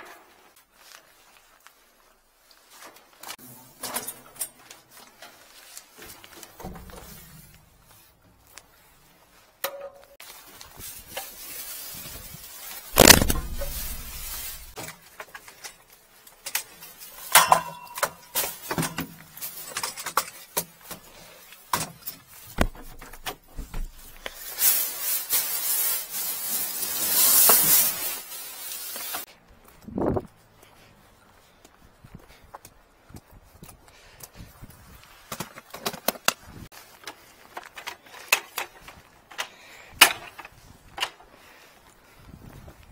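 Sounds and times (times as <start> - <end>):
plastic bags rustling: 10.2 - 17.4, 18.2 - 29.3.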